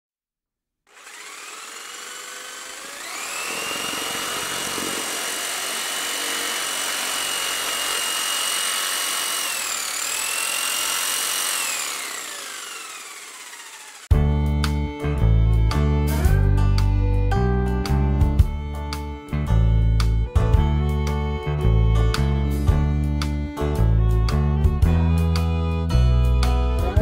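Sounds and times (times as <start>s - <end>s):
small high-speed motor whining: 0.9s - 14.1s
rushing hiss: 3.4s - 5.6s.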